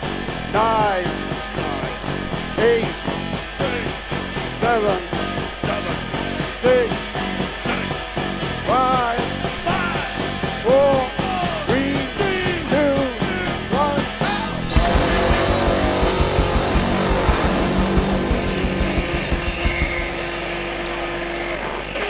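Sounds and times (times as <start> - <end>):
bass guitar: 0.0 - 21.8
drums: 0.0 - 22.0
electric guitar: 12.6 - 22.0
swooping lead sound: 14.7 - 21.4.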